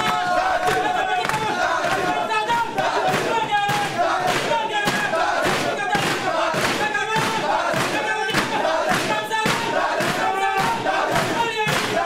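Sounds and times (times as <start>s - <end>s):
men chanting and shouting: 0.0s - 12.0s
hands pounding on a table: 2.8s - 12.0s.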